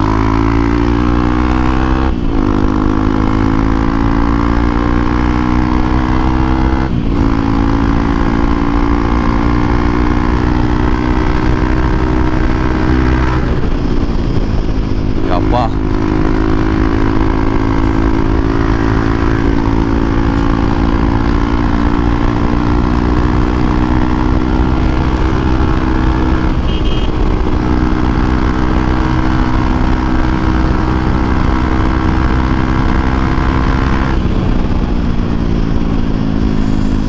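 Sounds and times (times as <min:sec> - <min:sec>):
motorcycle engine running: 0:00.0 - 0:37.0.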